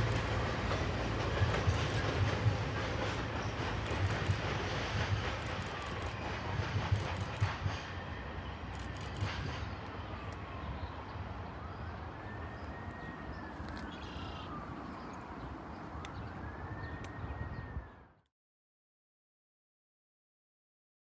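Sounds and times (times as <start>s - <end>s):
low rumble of city and rail: 0.0s - 18.3s
distant siren wailing: 9.9s - 18.3s.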